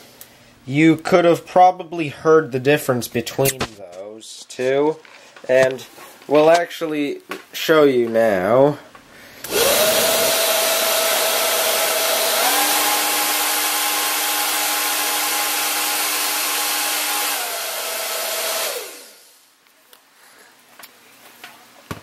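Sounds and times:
hair dryer blowing with motor whine: 9.4 - 19.5.

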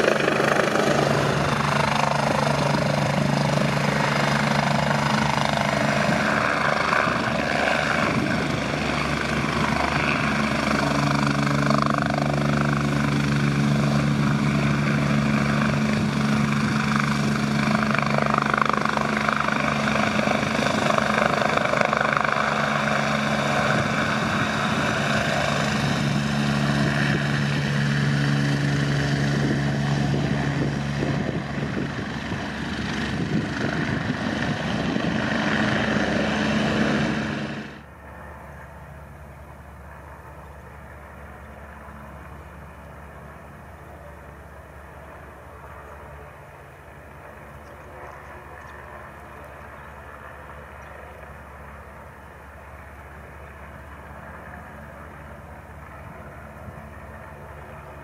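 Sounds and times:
turbine whine: 0.0 - 39.8
helicopter rotors beating: 0.0 - 58.0.

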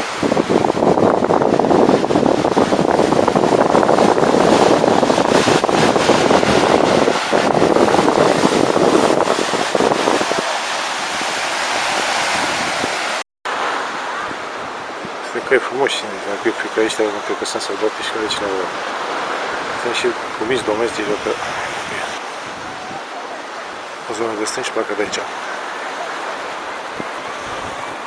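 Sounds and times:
wind buffeting microphone: 0.0 - 24.1, 25.0 - 28.0
surf rushing: 0.0 - 28.0.

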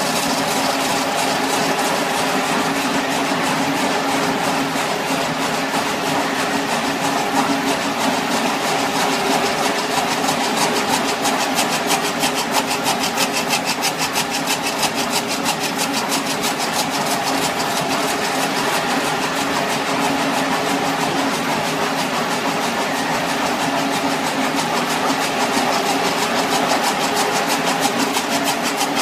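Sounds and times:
machine mechanical hum: 0.0 - 29.0
rapid even clicking: 0.0 - 29.0.

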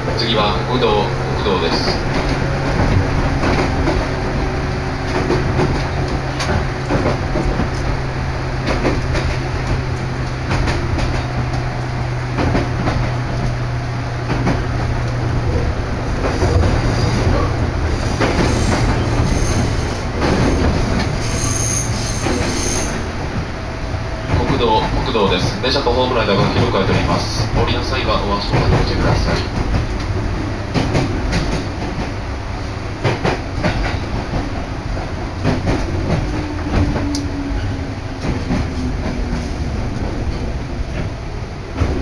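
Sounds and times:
electric train running: 0.0 - 42.0
wheels clacking over rail joints: 1.1 - 23.5, 24.2 - 42.0
high wheel squeals: 18.0 - 23.1.

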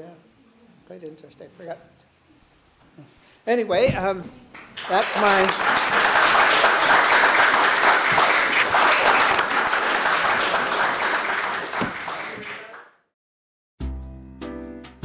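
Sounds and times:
audience applauding: 4.5 - 13.0
music: 13.8 - 15.0.

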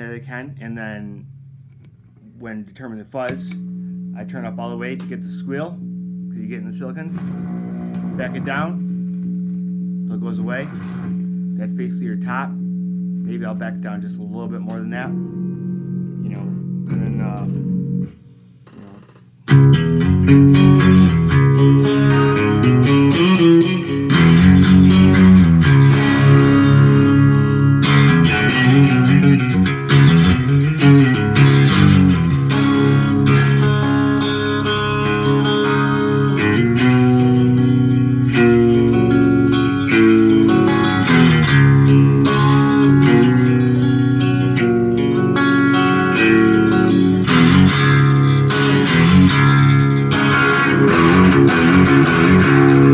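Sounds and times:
fuzz electric guitar playing: 6.4 - 9.1, 10.2 - 12.1, 14.1 - 18.2, 19.5 - 52.9.

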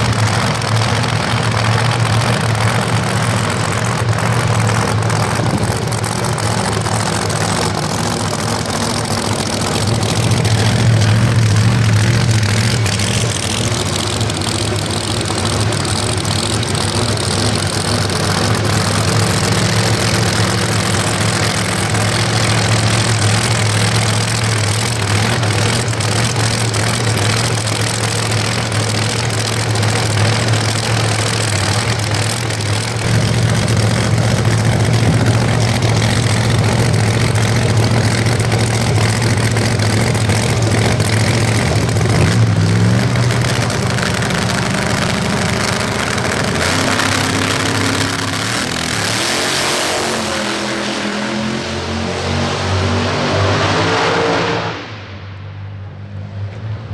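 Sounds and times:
drag car engine idling: 0.0 - 49.2
engine revving and accelerating: 44.3 - 55.0.

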